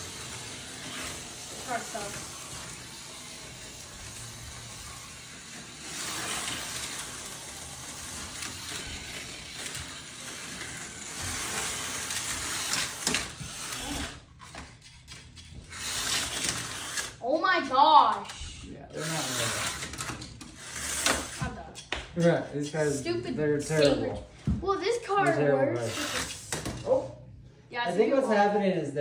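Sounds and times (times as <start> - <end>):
slot cars whirring and rattling: 0.0 - 14.3, 15.7 - 18.3, 19.0 - 21.4, 25.8 - 26.6.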